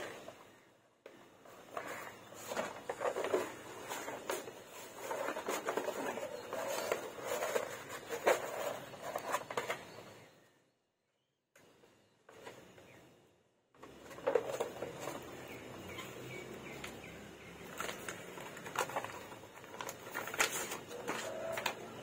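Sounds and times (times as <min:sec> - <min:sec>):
paper rustling and crinkling: 0:01.4 - 0:10.0, 0:13.8 - 0:22.0.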